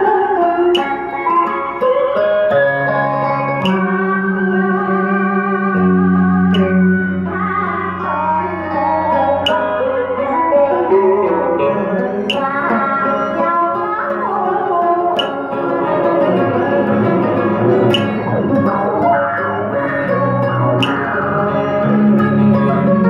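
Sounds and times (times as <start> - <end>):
plucked-string backing track: 0.0 - 23.0
woman singing into a microphone: 0.0 - 23.0
sharp percussive hit: 15.2 - 19.6.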